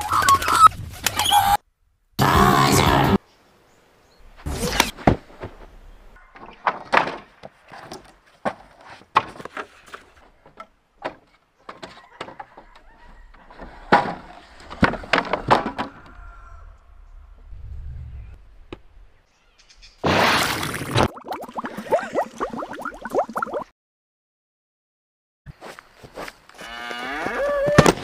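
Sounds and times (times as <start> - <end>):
wooden pallets knocking: 6.4 - 12.6, 13.7 - 16.0.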